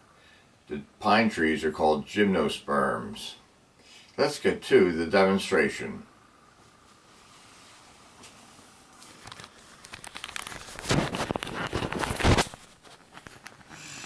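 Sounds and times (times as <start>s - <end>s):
camera handling rustles and clicks: 9.1s - 13.8s
camera bumps: 9.2s - 13.7s.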